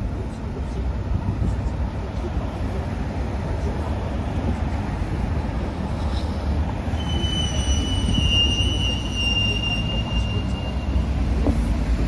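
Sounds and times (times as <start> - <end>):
road traffic rumble: 0.0 - 12.0
high thin squeal: 6.1 - 11.2.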